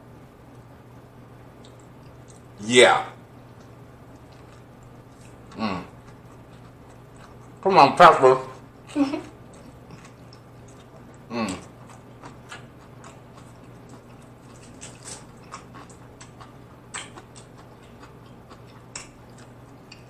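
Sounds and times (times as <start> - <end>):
wet mouth chewing: 3.6 - 7.6, 9.4 - 20.0
person humming: 5.6 - 5.9.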